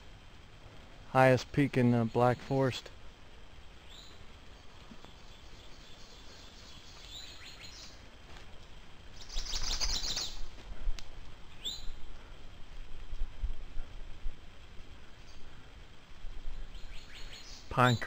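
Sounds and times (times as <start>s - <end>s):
songbirds chirping: 0.0s - 12.9s, 14.4s - 18.0s
bird rapid trill: 9.2s - 10.5s.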